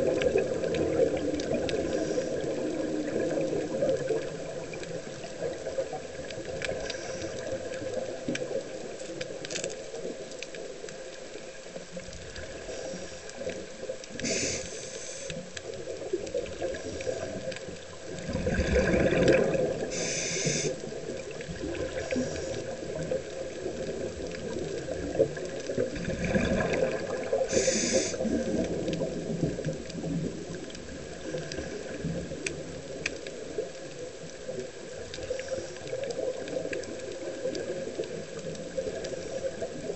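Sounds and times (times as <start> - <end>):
exhaled bubbles rushing: 0.0 - 9.0, 15.7 - 39.9
regulator air hiss: 14.2 - 15.4, 19.9 - 20.8, 27.5 - 28.5.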